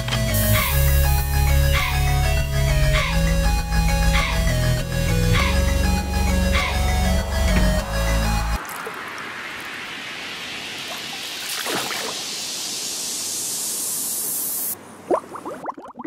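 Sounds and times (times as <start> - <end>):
steady rushing water-like noise: 8.5 - 15.1
short bubbling plops: 15.1 - 16.0.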